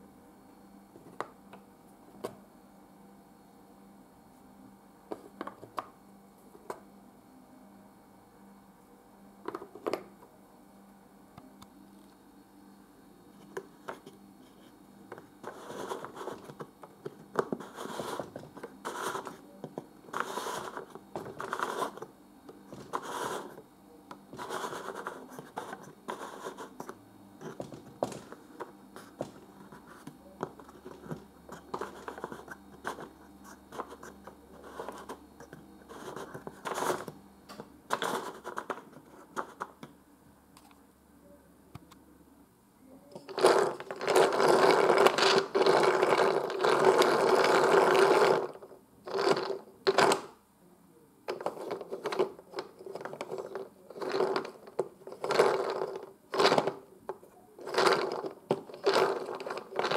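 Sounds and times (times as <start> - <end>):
toy gears scraping and rubbing: 20.1 - 22.1, 22.8 - 23.6, 43.3 - 50.3, 51.3 - 56.9, 57.6 - 59.9.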